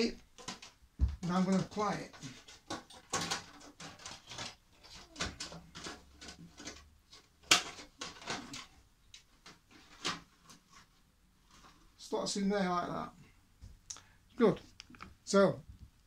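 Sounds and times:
plastic tub rustling and clicking: 0:00.0 - 0:12.0.

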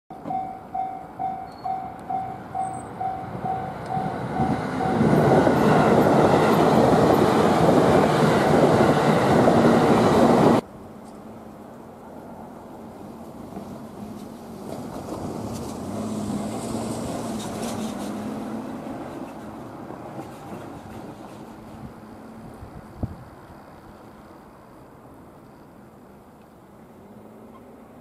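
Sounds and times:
electric locomotive running: 0:00.2 - 0:10.6
loud locomotive rush: 0:00.2 - 0:10.6, 0:12.0 - 0:24.3.

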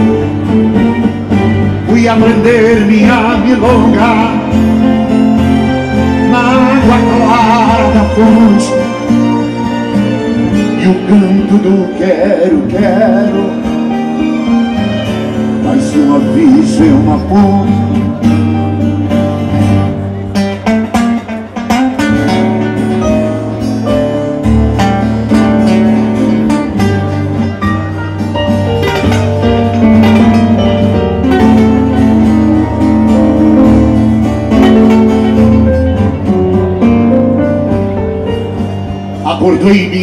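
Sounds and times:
nylon-string acoustic guitars: 0:00.0 - 0:40.0.

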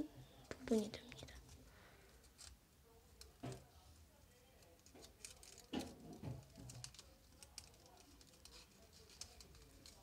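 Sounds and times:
paper crinkling and clicking: 0:04.5 - 0:10.0.

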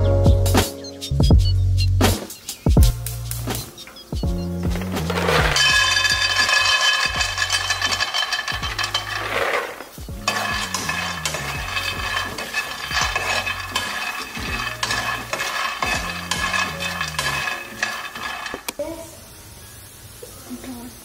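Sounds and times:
background music with bass: 0:00.0 - 0:06.4
spoon scraping a pan: 0:04.7 - 0:18.8
peanuts pouring into a pan: 0:04.8 - 0:18.8.

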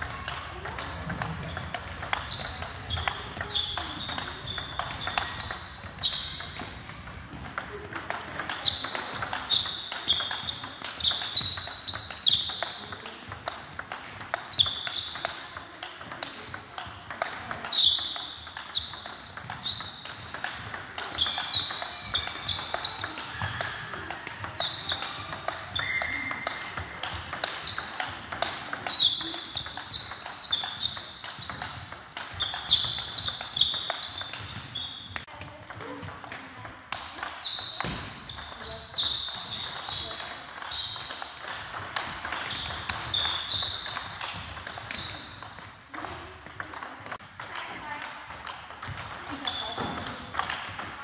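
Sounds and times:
table tennis ball clicking: 0:00.0 - 0:51.0
short high squeaks: 0:42.3 - 0:44.1.

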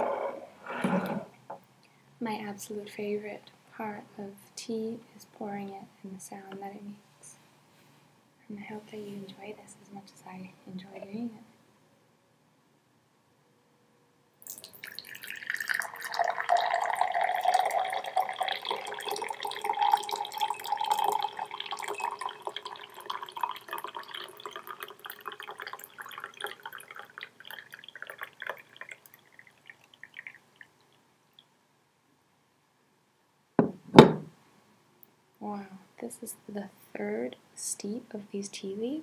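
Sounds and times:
tea pouring into mug: 0:14.4 - 0:31.0
sharp knock: 0:33.6 - 0:34.3.

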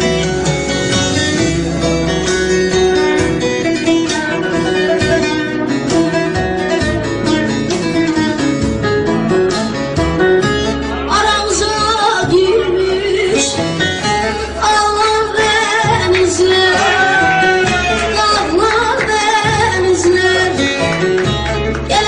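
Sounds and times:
plucked string instruments: 0:00.0 - 0:22.0
person singing: 0:11.0 - 0:20.8.

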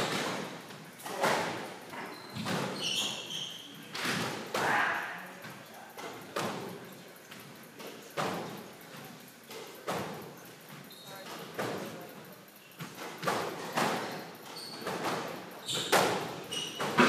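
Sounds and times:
shoes squeaking on wooden floor: 0:01.2 - 0:04.0, 0:13.8 - 0:17.0
squash ball hits echoing: 0:03.9 - 0:05.3.

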